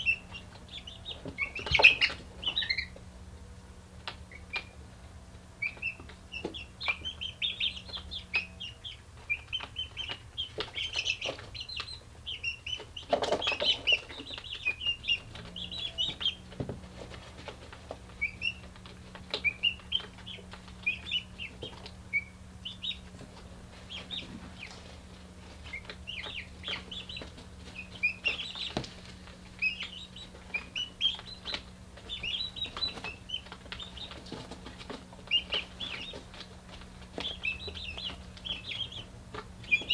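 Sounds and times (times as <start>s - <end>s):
chicks cheeping: 0.0s - 39.9s
steady low hum: 0.0s - 39.9s.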